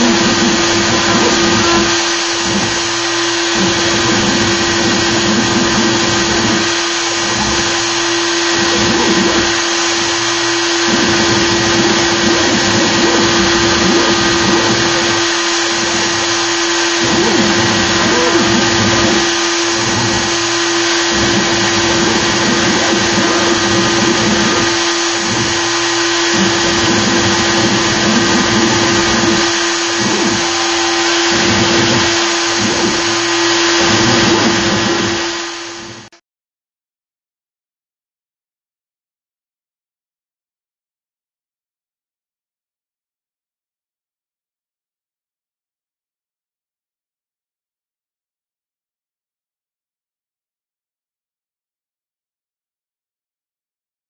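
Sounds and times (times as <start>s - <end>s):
bit cutting wood: 0.0s - 36.2s
router spindle whine: 0.0s - 36.2s.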